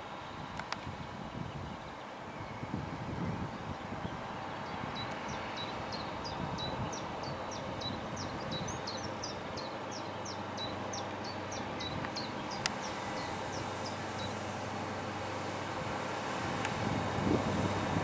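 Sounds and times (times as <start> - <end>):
diesel locomotive engine hum: 0.0 - 18.0
high hiss: 10.3 - 18.0.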